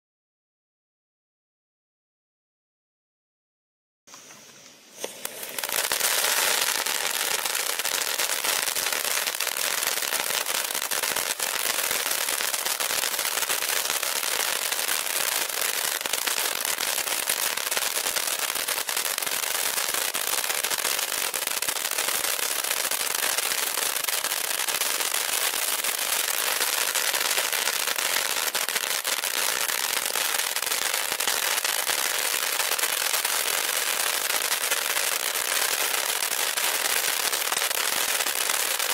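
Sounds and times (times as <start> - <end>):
hiss of spark spray: 4.1 - 15.6
firework crackling pops: 4.1 - 38.9.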